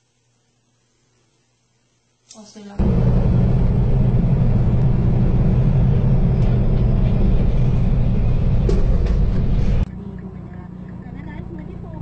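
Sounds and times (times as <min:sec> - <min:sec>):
vehicle low rumble: 0:02.8 - 0:12.0.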